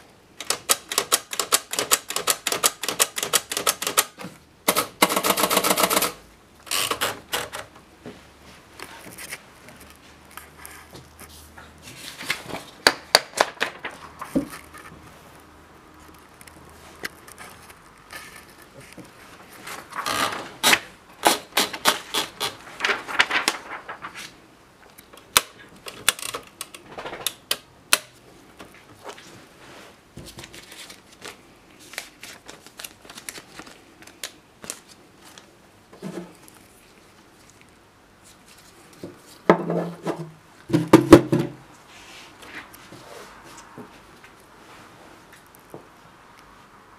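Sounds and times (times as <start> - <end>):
typewriter clicks and clatter: 0.4 - 7.7, 20.0 - 23.8, 25.2 - 28.1.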